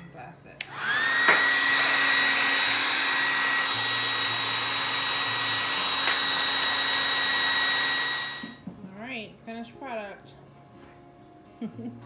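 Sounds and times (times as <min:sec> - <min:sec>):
blow dryer running: 0:00.6 - 0:08.6.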